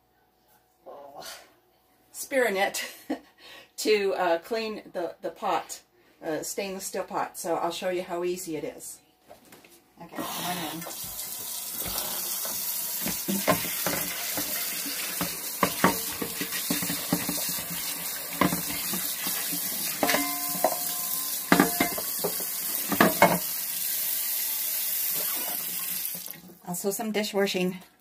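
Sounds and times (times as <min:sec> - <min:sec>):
tap water running into sink: 0:10.8 - 0:26.6
brush scrubbing frying pan: 0:13.0 - 0:23.4
pan clanking against sink: 0:13.0 - 0:23.5.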